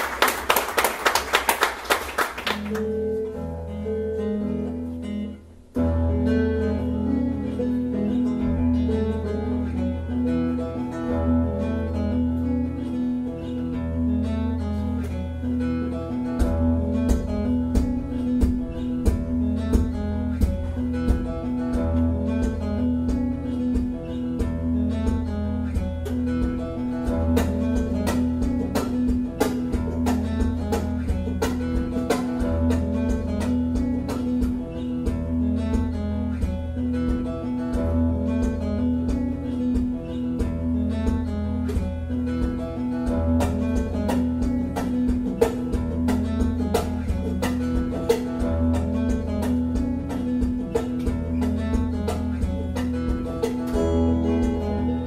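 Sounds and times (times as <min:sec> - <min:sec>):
applause: 0:00.0 - 0:03.0
solo acoustic guitar: 0:00.0 - 0:55.0.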